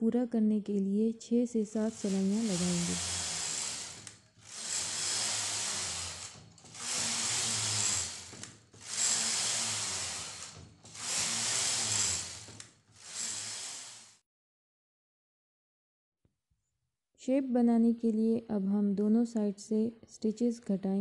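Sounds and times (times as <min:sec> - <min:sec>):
knitting machine carriage sliding: 0:01.8 - 0:14.2.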